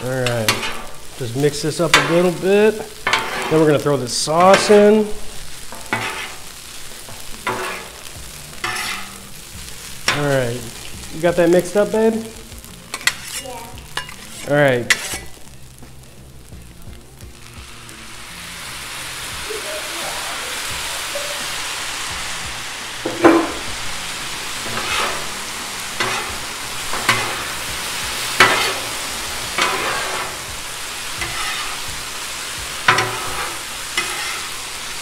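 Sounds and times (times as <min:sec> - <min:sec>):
rice sizzling on griddle: 0:00.0 - 0:35.0
metal spatulas scraping griddle: 0:00.2 - 0:01.1, 0:01.8 - 0:05.1, 0:05.7 - 0:06.7, 0:07.4 - 0:09.2, 0:12.9 - 0:15.4, 0:24.6 - 0:25.4, 0:26.0 - 0:27.6, 0:28.2 - 0:32.2, 0:32.8 - 0:34.7.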